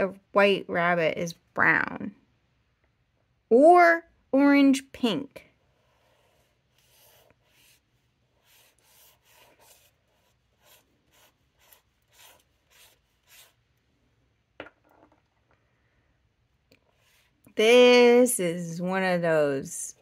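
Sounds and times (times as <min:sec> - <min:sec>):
ink applicator rubbing on paper: 0:05.8 - 0:13.6.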